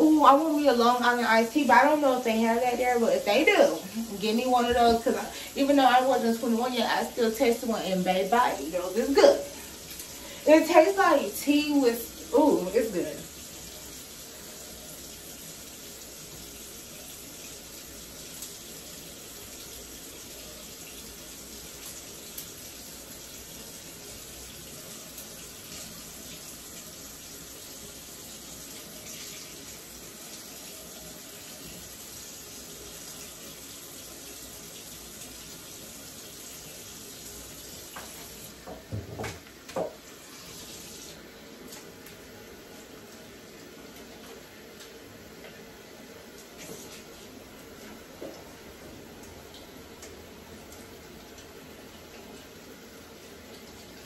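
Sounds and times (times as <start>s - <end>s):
tap running into sink: 37.9s - 40.0s.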